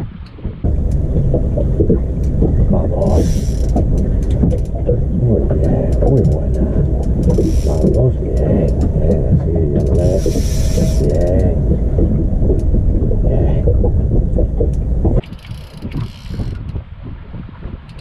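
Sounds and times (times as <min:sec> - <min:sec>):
heavy low rumble: 0:00.0 - 0:18.0
fishing reel ratcheting whir: 0:03.1 - 0:04.7, 0:07.0 - 0:08.0, 0:09.8 - 0:11.4, 0:15.2 - 0:16.8.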